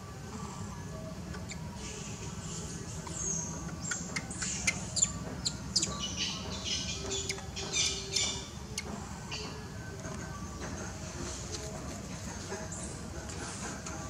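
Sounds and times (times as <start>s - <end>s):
high-pitched animal chirps: 3.7s - 8.9s.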